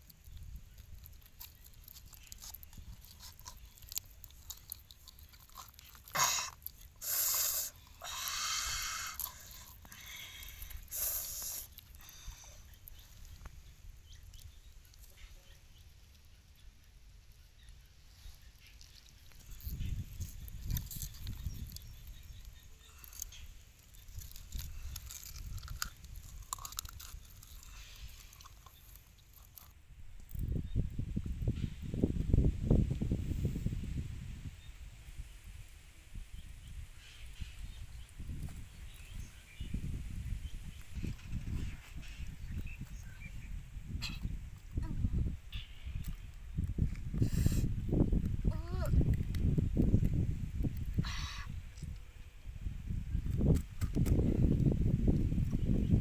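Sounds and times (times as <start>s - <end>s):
small clicks and ticks: 0.0s - 7.0s, 18.6s - 30.4s.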